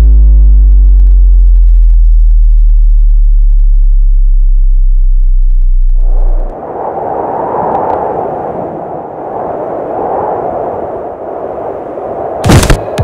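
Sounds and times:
deep synthesized drone: 0:00.0 - 0:06.6
rushing noise: 0:05.9 - 0:13.0.

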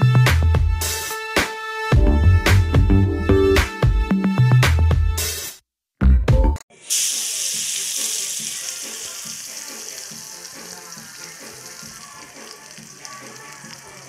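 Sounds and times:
electronic intro music: 0:02.0 - 0:04.1
garlic sizzling in oil: 0:06.8 - 0:14.0.

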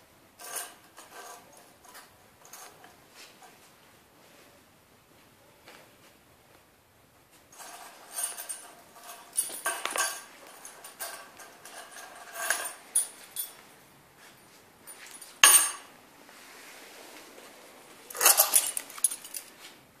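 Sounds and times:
keys clattering on paving: 0:07.6 - 0:13.7, 0:14.9 - 0:15.9, 0:18.1 - 0:19.6
keys jingling: 0:07.8 - 0:13.6, 0:18.1 - 0:19.6.

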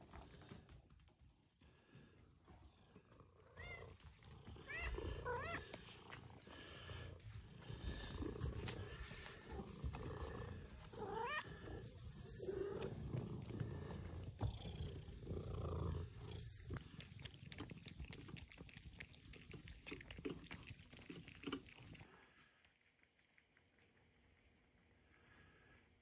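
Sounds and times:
cat purring: 0:02.8 - 0:22.3
cat meowing: 0:11.0 - 0:11.5.

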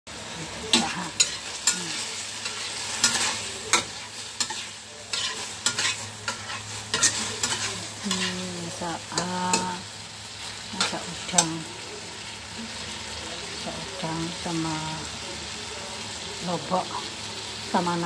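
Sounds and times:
food sizzling in a wok: 0:00.1 - 0:18.0
spatula scraping and knocking a wok: 0:00.4 - 0:08.5.

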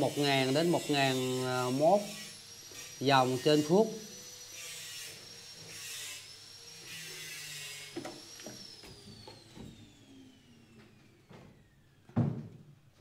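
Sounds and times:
motor whine winding down: 0:00.0 - 0:12.1
thump: 0:12.1 - 0:12.6.

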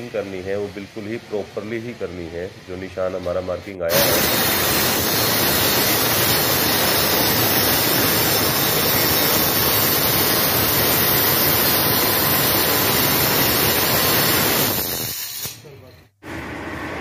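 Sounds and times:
electric stone cutter grinding: 0:03.9 - 0:15.0.

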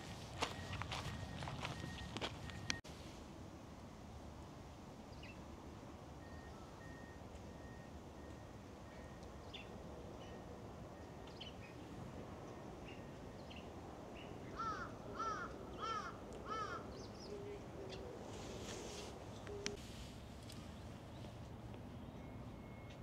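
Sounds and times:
crow cawing: 0:14.6 - 0:16.9.

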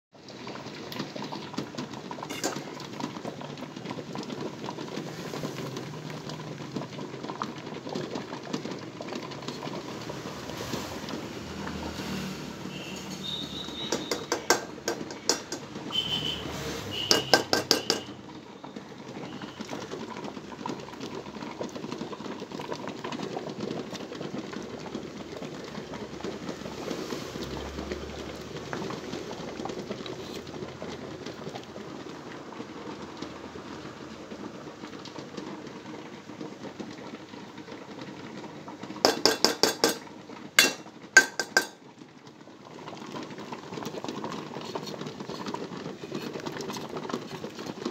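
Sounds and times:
spoon clinking on steel bowl: 0:17.1 - 0:18.1, 0:39.1 - 0:40.0, 0:40.6 - 0:41.8.

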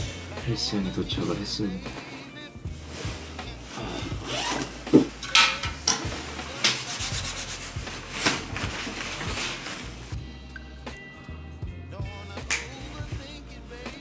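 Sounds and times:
coat rustling and swishing: 0:02.6 - 0:10.2.

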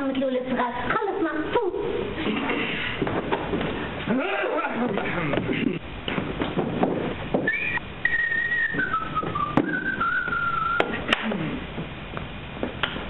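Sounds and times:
person whistling a tune: 0:07.4 - 0:11.0.

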